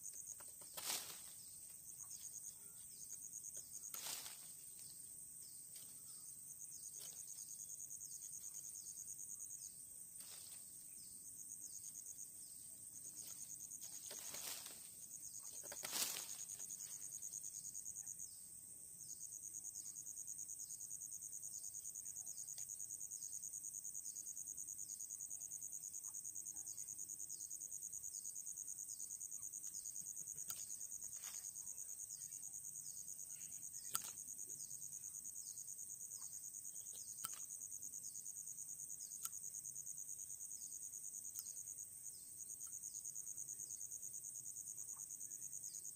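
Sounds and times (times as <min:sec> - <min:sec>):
insects chirping: 0:00.0 - 0:45.9
knife cutting wooden stick: 0:33.8 - 0:34.2.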